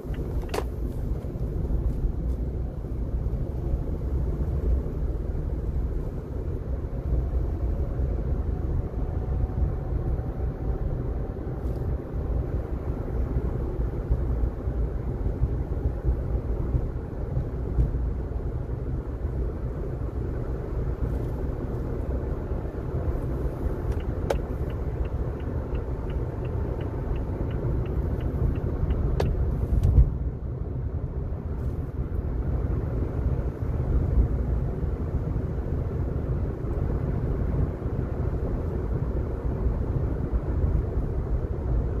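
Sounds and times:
tyres and engine rumble: 0.0s - 42.0s
light evenly spaced ticks: 23.9s - 29.0s.

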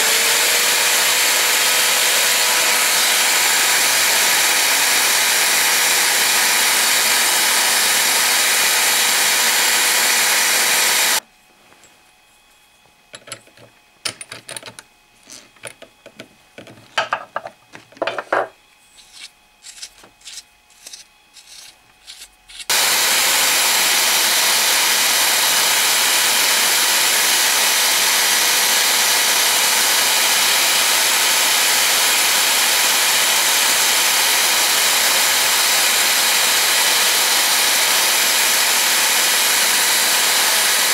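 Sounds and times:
drill press running: 0.0s - 11.2s, 18.0s - 40.9s
abrasive strip rubbing spindle: 18.9s - 22.8s.

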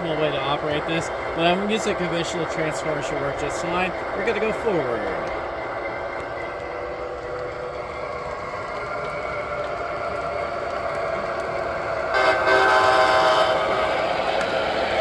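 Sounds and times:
model train diesel engine sound: 0.0s - 15.0s
locomotive horn blast: 12.1s - 14.0s.

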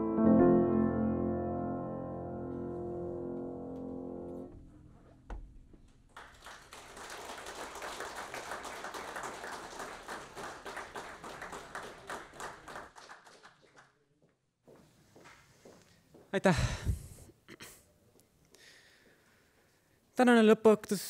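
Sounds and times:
piano notes ringing: 0.0s - 5.3s
audience applauding: 6.1s - 14.0s.

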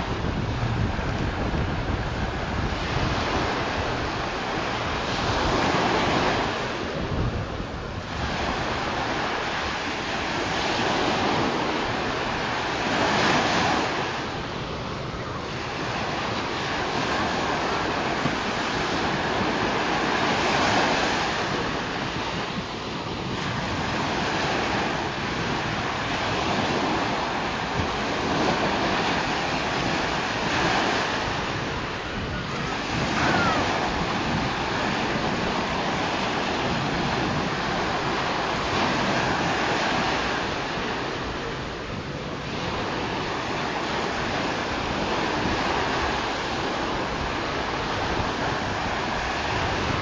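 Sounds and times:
ocean surf breaking: 0.0s - 50.0s
wind buffeting microphone: 0.0s - 50.0s.

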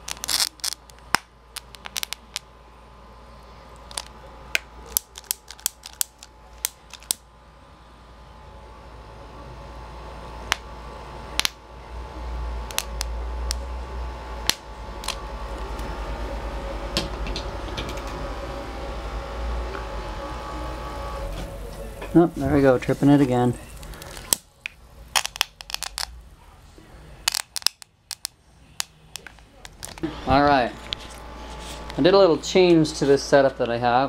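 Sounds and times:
transformer hum: 0.0s - 34.0s.

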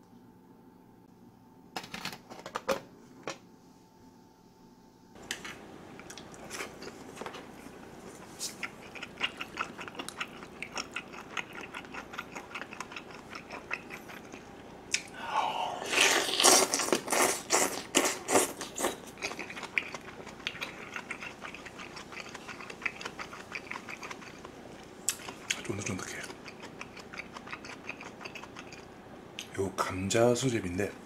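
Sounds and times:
wet chewing: 5.4s - 15.1s, 15.8s - 29.0s
slurping: 6.1s - 28.9s.

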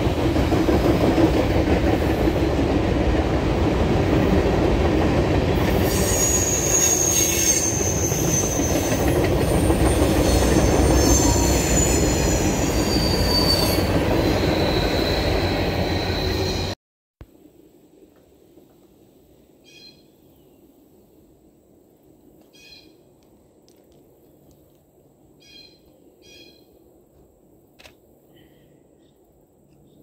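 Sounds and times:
train wheels rumbling on rail: 0.0s - 16.8s
high wheel squeal: 5.7s - 16.8s.

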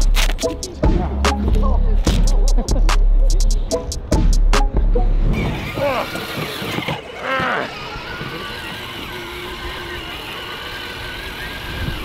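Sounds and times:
toy truck motor whining: 5.2s - 12.0s.

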